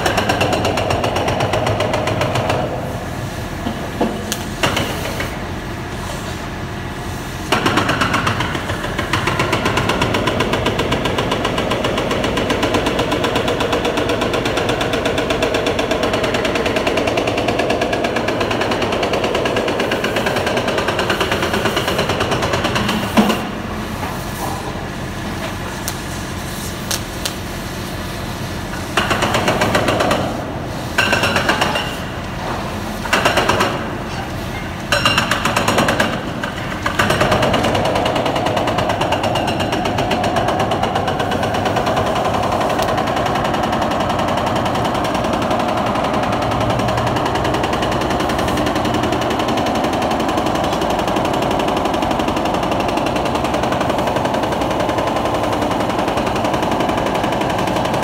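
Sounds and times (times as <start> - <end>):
jackhammer breaking concrete: 0.0 - 2.8, 7.5 - 23.6, 28.9 - 30.4, 31.0 - 32.2, 33.0 - 34.2, 34.9 - 58.0.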